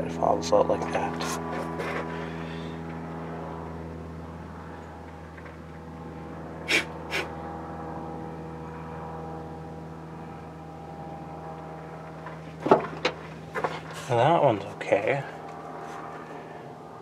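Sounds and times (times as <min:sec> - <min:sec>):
steady low hum: 0:00.0 - 0:17.0
sharp puffs of breath: 0:06.6 - 0:07.3.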